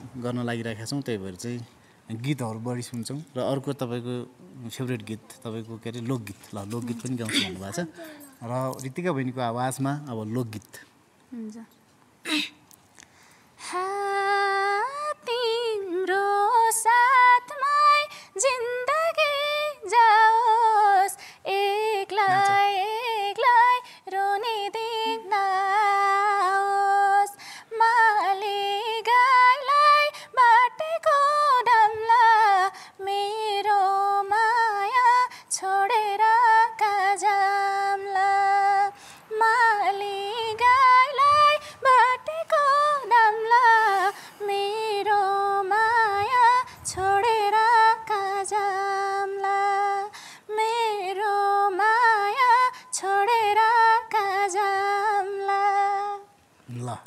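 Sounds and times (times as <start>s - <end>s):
woman singing folk song unaccompanied: 13.6s - 56.5s.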